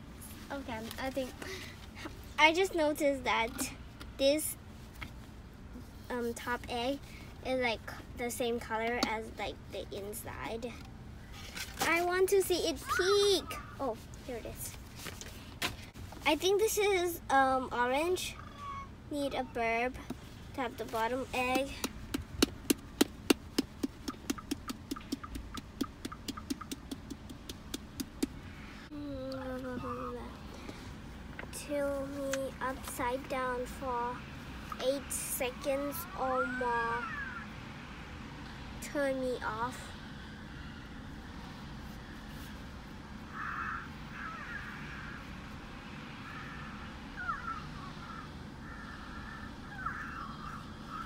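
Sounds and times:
tapping on hollow plastic shell: 21.8s - 28.4s.

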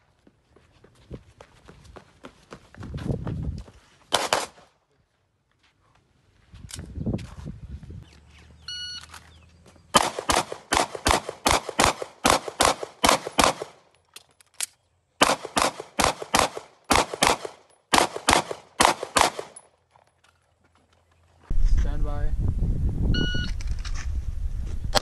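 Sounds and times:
pistol shots: 4.1s - 4.6s, 9.9s - 13.8s, 15.2s - 19.6s
shot timer beep: 23.2s - 23.5s.

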